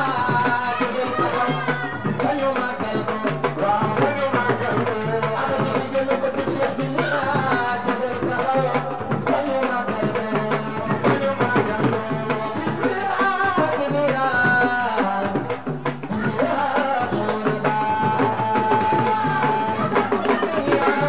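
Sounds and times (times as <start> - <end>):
hand drums: 0.0 - 21.0
person singing into a microphone: 0.0 - 21.0.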